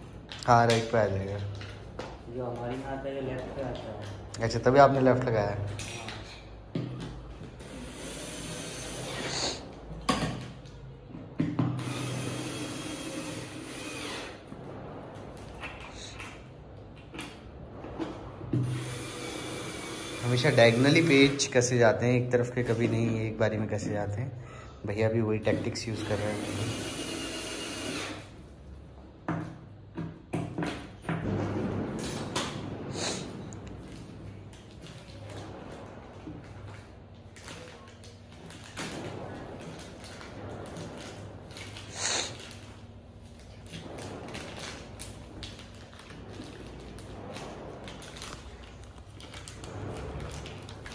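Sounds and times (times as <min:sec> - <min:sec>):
cordless drill motor whine: 0:11.8 - 0:14.4, 0:18.7 - 0:21.3, 0:26.1 - 0:28.2.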